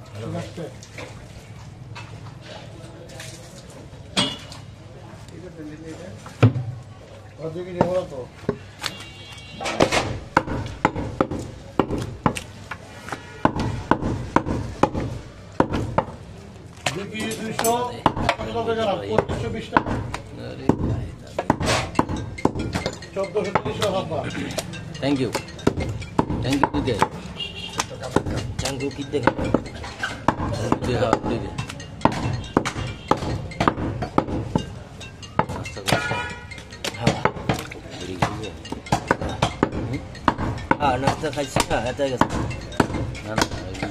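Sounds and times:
cleaver chopping meat and bone: 9.6 - 43.9.

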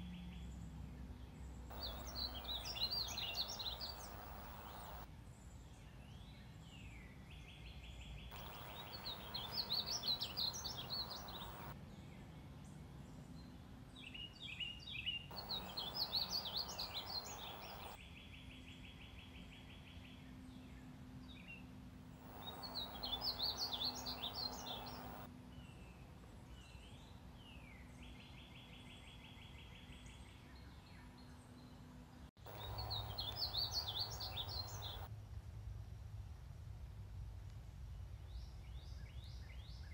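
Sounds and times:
bird warbling song: 1.7 - 5.0, 8.3 - 11.7, 15.3 - 18.0, 22.3 - 25.3, 32.5 - 35.1
buzzy bird trill: 1.7 - 5.0, 8.3 - 11.7, 15.3 - 18.0, 22.3 - 25.3, 32.5 - 35.1.

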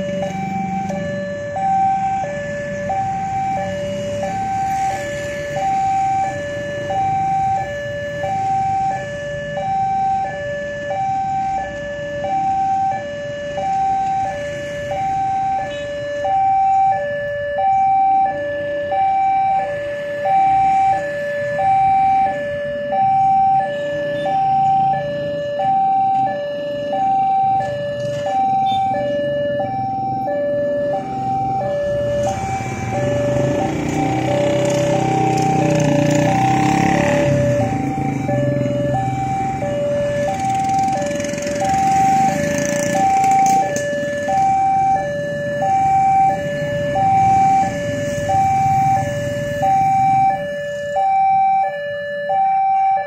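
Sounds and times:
level crossing two-tone alarm: 0.0 - 53.0
motorcycle engines running: 27.1 - 50.4.

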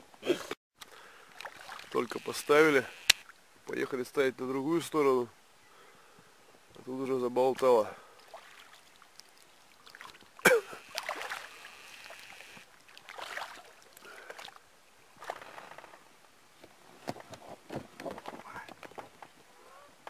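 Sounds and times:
oars dipping and swishing: 0.8 - 3.5, 6.6 - 20.0
water trickling: 1.3 - 2.5, 7.7 - 14.7.

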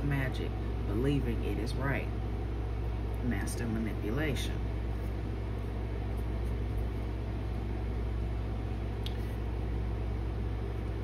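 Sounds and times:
low hum and rumble: 0.0 - 11.0.

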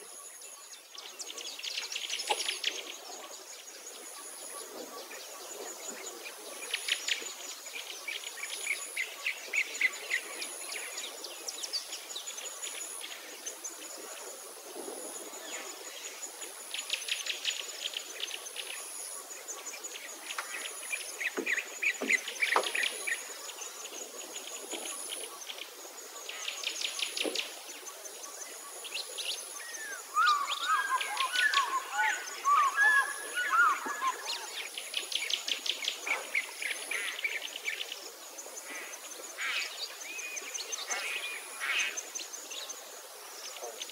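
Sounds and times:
warbling birdsong: 0.0 - 43.9.

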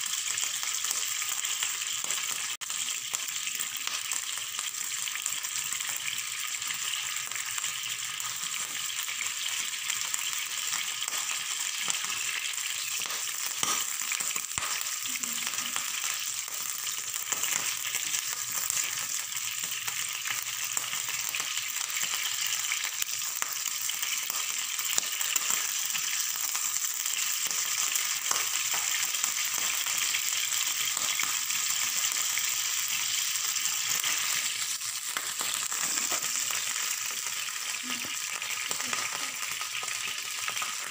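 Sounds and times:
meat sizzling in oil: 0.0 - 40.9.

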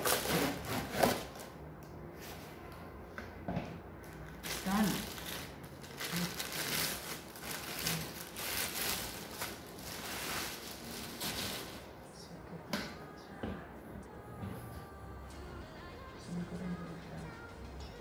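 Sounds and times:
plastic wrapping crinkling: 0.0 - 1.5, 4.1 - 12.0.

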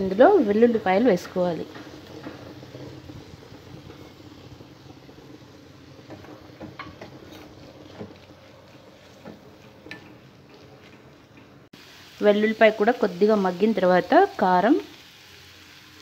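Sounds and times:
food frying quietly in a pan: 0.0 - 16.0
spatula scraping a pan: 6.0 - 11.6.

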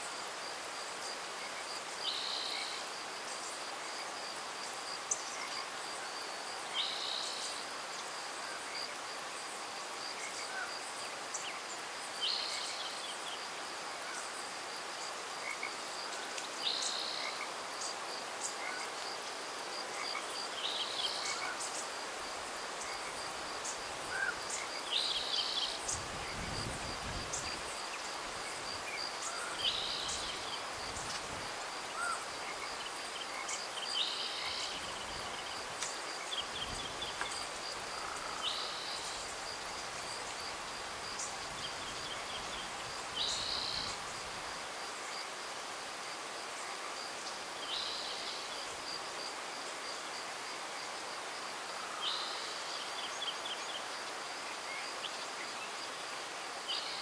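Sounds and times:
high insect trill: 14.1 - 45.2
wind rumble on microphone: 25.8 - 27.7.

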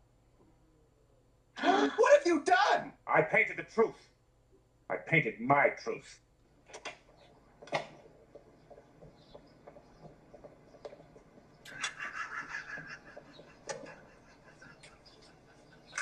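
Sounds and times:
man stifling a laugh: 1.6 - 2.0, 11.7 - 16.0.

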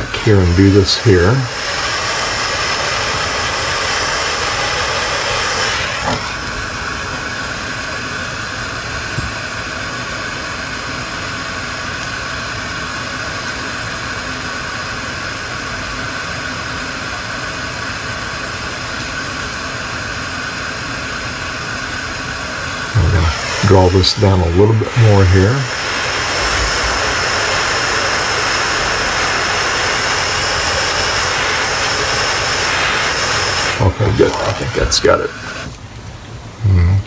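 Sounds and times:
micro torch jet flame hissing: 0.0 - 36.6
torch knocking on stand: 1.5 - 6.4.

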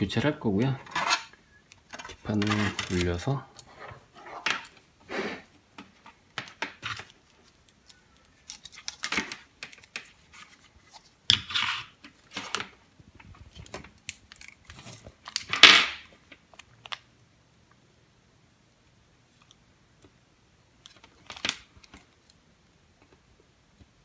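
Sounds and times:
objects scraping on wooden desk: 3.7 - 5.5.

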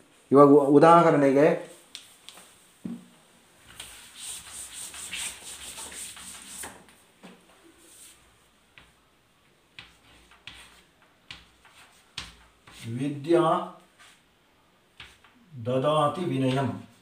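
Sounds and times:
cloth rubbing a chalkboard: 3.6 - 6.9, 7.6 - 8.5, 9.8 - 13.3, 13.9 - 14.3
chalk tapping and scraping on board: 3.7 - 6.9, 7.9 - 9.0, 9.7 - 12.9, 14.9 - 15.4.

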